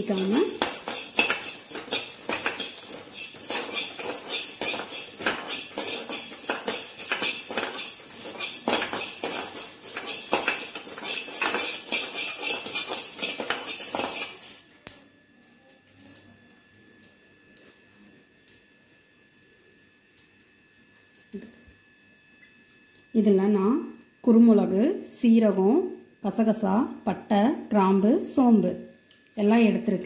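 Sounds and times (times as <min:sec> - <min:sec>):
seeds rattling in pan: 0:00.0 - 0:14.6
spoon scraping metal pan: 0:00.0 - 0:14.6.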